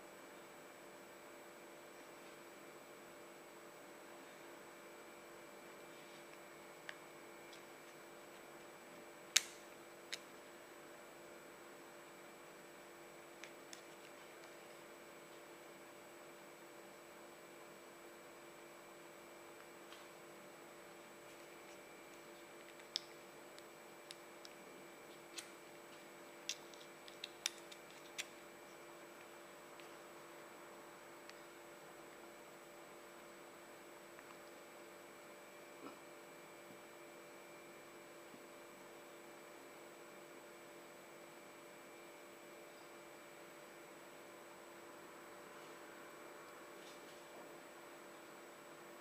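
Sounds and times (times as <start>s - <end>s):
faint background hum: 0.0s - 49.0s
small plastic clicks: 26.5s - 28.4s.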